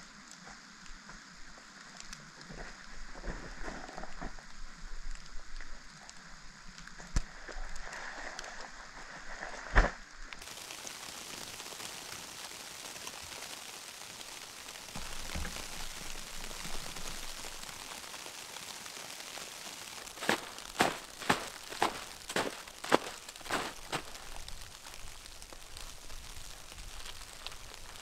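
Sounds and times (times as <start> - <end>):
snow pattering in forest: 0.0 - 28.0
snowshoe steps in snow: 20.0 - 25.9.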